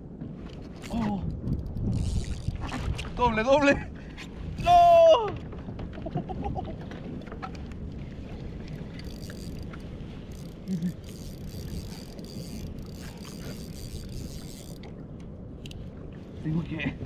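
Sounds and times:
wind on microphone: 0.0s - 17.0s
fishing reel ticking: 0.9s - 2.5s, 8.9s - 14.8s.

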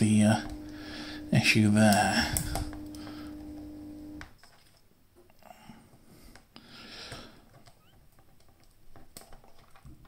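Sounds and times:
plastic parts clicking and rustling: 4.2s - 5.3s, 5.9s - 10.0s.

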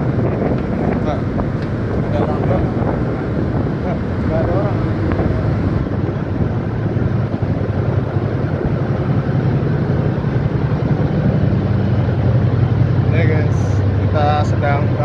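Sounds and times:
constant rushing noise: 0.0s - 15.0s
ship engines droning: 0.0s - 15.0s.

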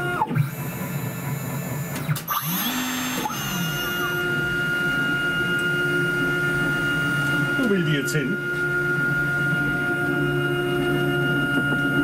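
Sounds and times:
router spindle whine: 0.0s - 12.0s
dust extraction vacuum rush: 2.4s - 9.9s.

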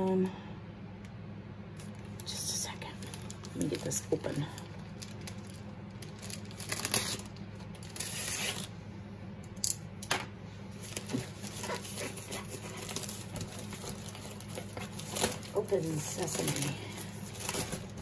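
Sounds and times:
plastic bag tearing and crinkling: 3.0s - 8.7s, 10.8s - 18.0s.

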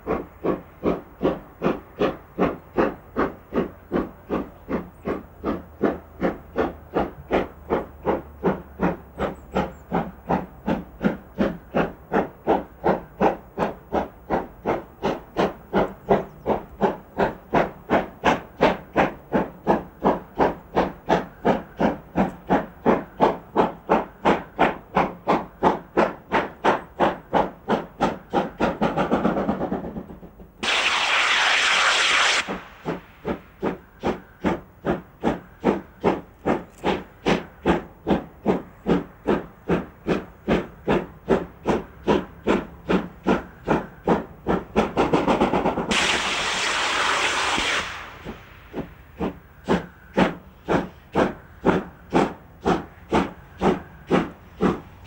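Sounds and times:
steam locomotive chuffing: 0.0s - 55.0s
steam hissing: 30.6s - 55.0s.

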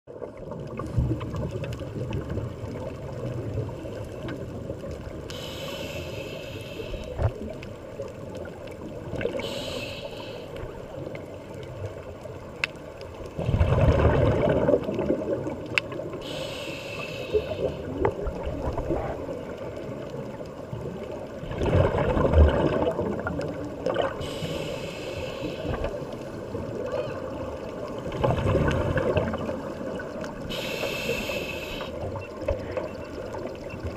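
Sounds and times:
muffled underwater water noise: 0.1s - 33.9s
faint hissing: 3.6s - 12.1s, 16.0s - 20.1s, 24.0s - 28.0s, 29.5s - 32.2s
bubbling bursts: 13.4s - 15.6s, 21.4s - 24.3s.

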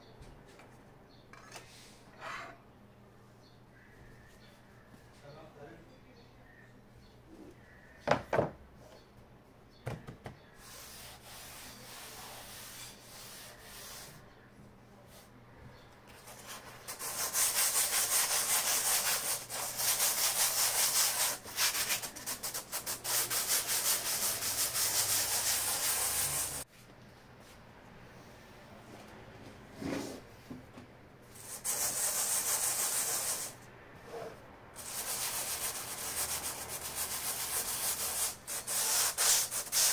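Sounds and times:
sandpaper rubbing on canvas: 10.6s - 14.2s, 16.2s - 26.6s, 31.4s - 33.6s, 34.8s - 39.9s.

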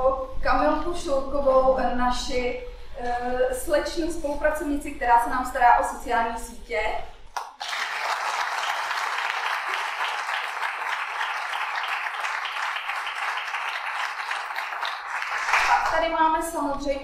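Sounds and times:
audience applauding: 7.4s - 16.0s.

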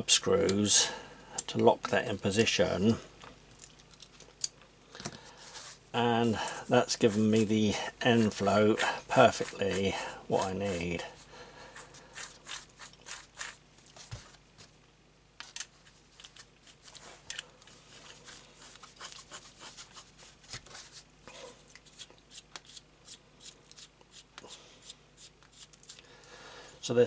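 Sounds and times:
small clicks and rubbing of spindle: 25.3s - 26.0s.

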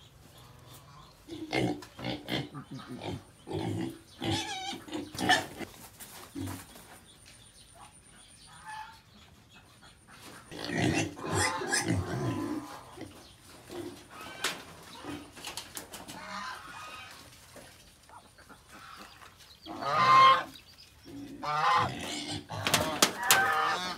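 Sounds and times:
pigs grunting: 1.0s - 6.7s, 10.4s - 15.4s, 21.1s - 23.9s.

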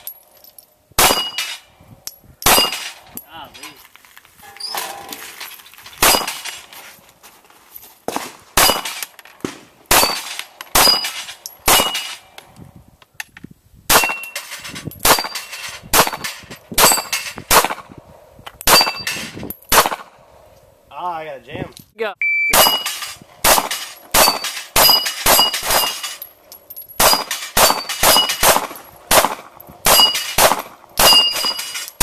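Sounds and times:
handgun shots: 8.6s - 12.2s, 22.5s - 26.0s, 27.0s - 31.6s
steel plate ringing: 18.7s - 19.2s, 22.6s - 23.1s, 29.8s - 30.4s, 31.0s - 32.0s.

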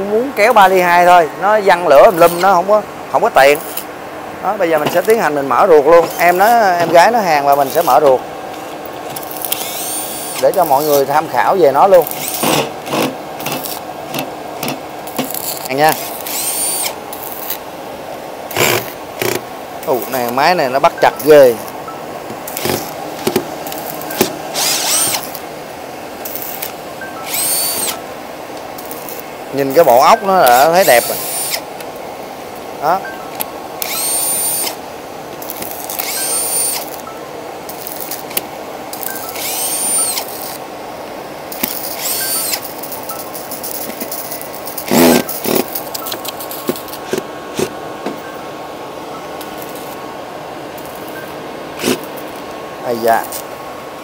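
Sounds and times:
steady hiss and faint hum: 0.0s - 54.0s
electric screwdriver whine: 9.2s - 11.0s, 12.0s - 13.8s, 15.2s - 17.6s, 18.5s - 19.4s, 22.5s - 23.0s, 23.7s - 25.4s, 26.3s - 28.0s, 30.4s - 31.6s, 33.8s - 34.8s, 35.5s - 37.0s, 39.0s - 40.6s, 41.6s - 46.9s
screwdriver bit clicking on screws: 9.2s - 11.0s, 12.0s - 17.6s, 23.7s - 25.4s, 27.3s - 28.0s, 33.8s - 34.8s, 35.5s - 36.9s, 39.0s - 40.6s, 41.6s - 42.7s.

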